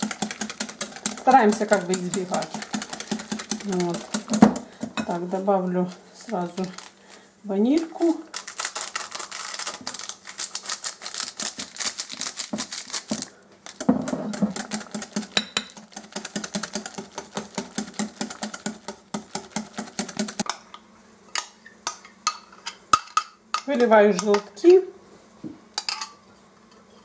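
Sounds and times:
whisk beating in a glass bowl: 0:00.0 - 0:04.7, 0:14.1 - 0:20.4.

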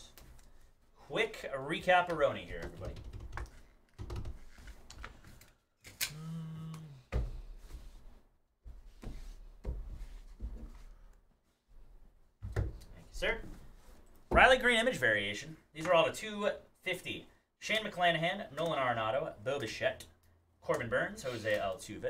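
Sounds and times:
person humming: 0:06.0 - 0:07.1.

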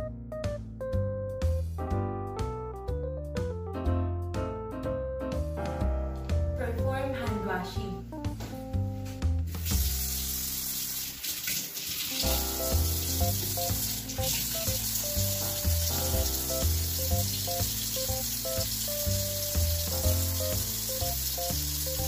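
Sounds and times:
background music with bass line: 0:00.0 - 0:10.4, 0:12.2 - 0:22.0
hands washed under water: 0:09.5 - 0:22.0
tap water running into sink: 0:09.5 - 0:22.0.

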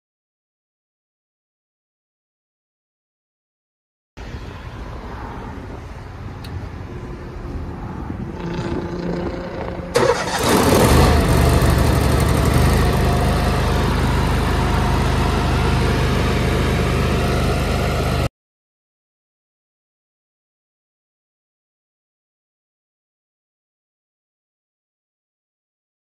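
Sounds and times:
generator engine starting and running: 0:08.2 - 0:18.3.

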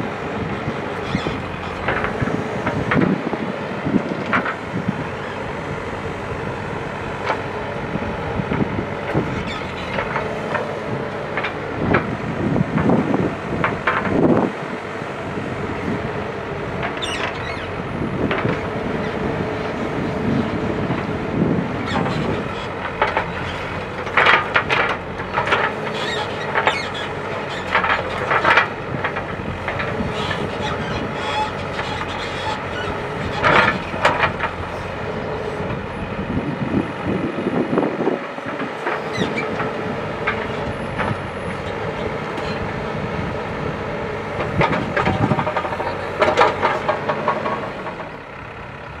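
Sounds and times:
diesel engine under load: 0:00.0 - 0:49.0.

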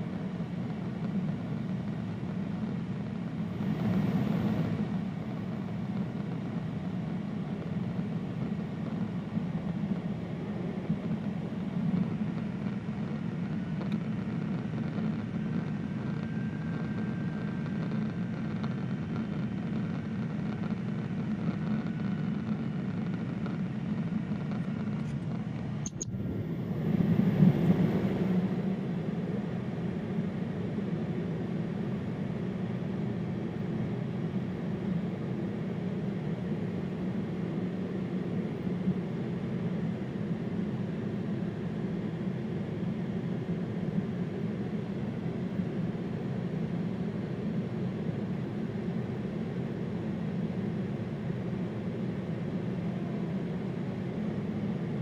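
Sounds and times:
airplane cabin engine hum: 0:00.0 - 0:55.0
sharp click: 0:25.8 - 0:26.2.

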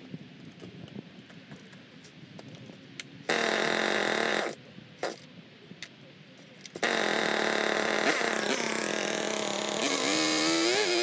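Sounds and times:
chainsaw pull-starting: 0:06.8 - 0:11.0.

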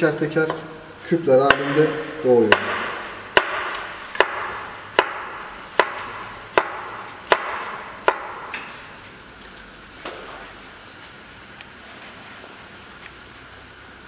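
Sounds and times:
knife chopping on plastic board: 0:02.5 - 0:08.5.

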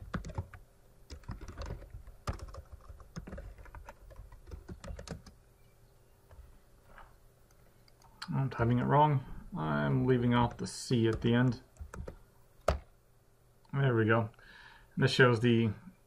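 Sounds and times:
computer keyboard clicking: 0:00.0 - 0:05.4, 0:10.4 - 0:12.8.

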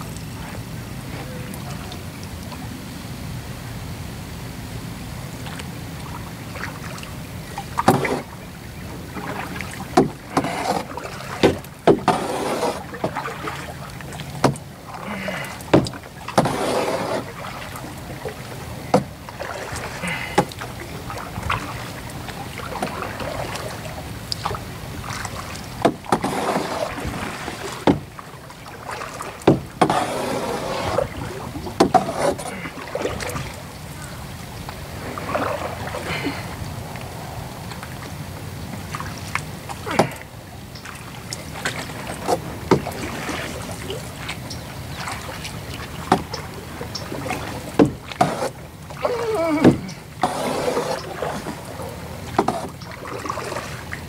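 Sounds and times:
water splashing from paddle strokes: 0:05.0 - 0:54.0
paddle knocking against hull: 0:06.6 - 0:33.6, 0:38.7 - 0:54.0.

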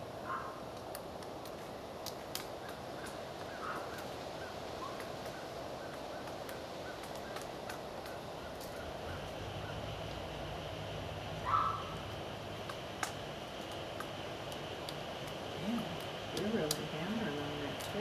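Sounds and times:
background hiss: 0:00.0 - 0:18.0
faint bird calls: 0:00.2 - 0:00.6, 0:02.6 - 0:10.0, 0:11.4 - 0:12.1
woodpecker tapping on bark: 0:00.7 - 0:10.2, 0:11.6 - 0:18.0.

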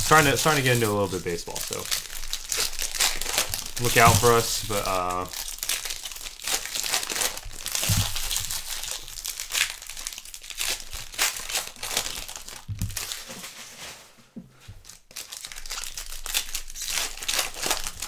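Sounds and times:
plastic wrappers crinkling and tearing: 0:00.0 - 0:14.1, 0:14.7 - 0:18.0.

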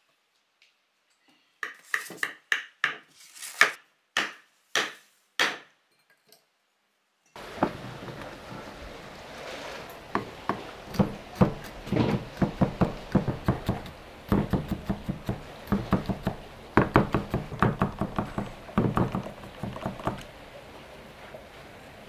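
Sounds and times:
cleaver chopping on wooden block: 0:10.2 - 0:20.2.

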